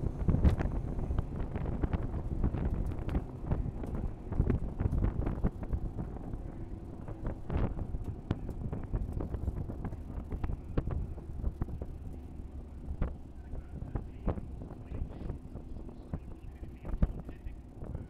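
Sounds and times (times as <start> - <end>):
race car engine: 0.0 - 18.0
wind buffeting microphone: 0.0 - 18.0.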